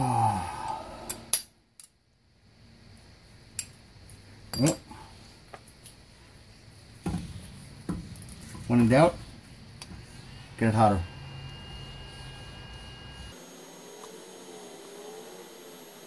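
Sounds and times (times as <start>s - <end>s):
person grunting: 0.0s - 1.1s
person sighing: 0.0s - 1.3s
metallic clinks of hand tools: 4.5s - 4.9s.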